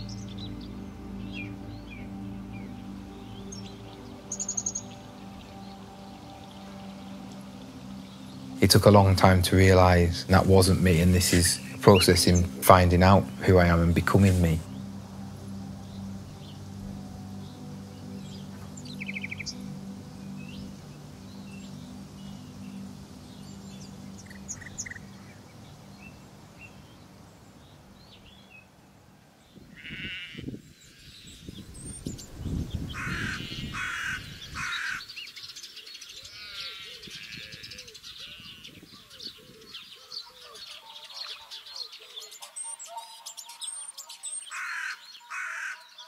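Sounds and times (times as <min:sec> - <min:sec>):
bending wavering calls: 0:00.0 - 0:28.8
bird chirps: 0:00.0 - 0:28.8, 0:29.8 - 0:46.0
low steady drone: 0:00.0 - 0:29.6.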